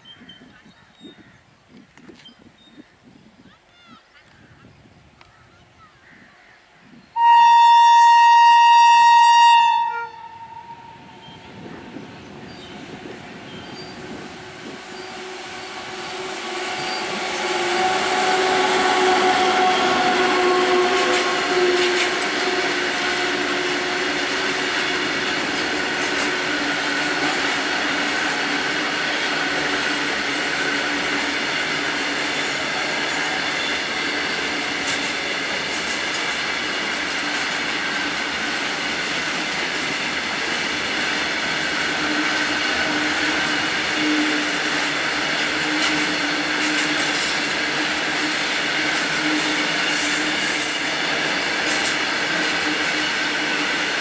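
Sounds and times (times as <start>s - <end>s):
locomotive horn blast: 7.2s - 11.5s, 14.6s - 27.6s
freight train rumbling past: 7.2s - 54.0s.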